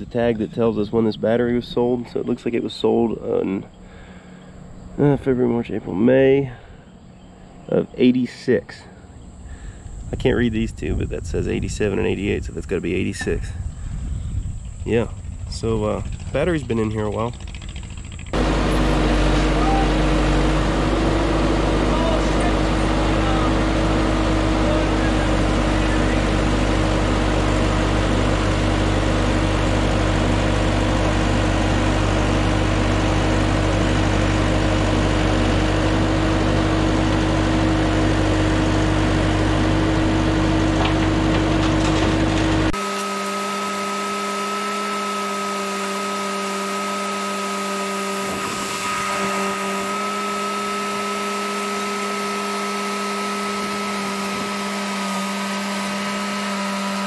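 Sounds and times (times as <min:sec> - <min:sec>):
thin steady whine: 0:00.0 - 0:36.2
diesel engine rumbling: 0:00.0 - 0:57.0.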